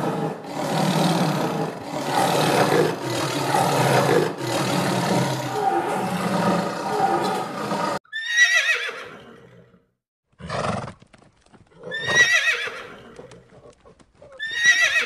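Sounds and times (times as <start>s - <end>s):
tiger roaring: 0.0s - 8.0s
horse whinnying: 2.1s - 9.8s, 11.8s - 15.0s
galloping hoofbeats: 10.3s - 15.0s.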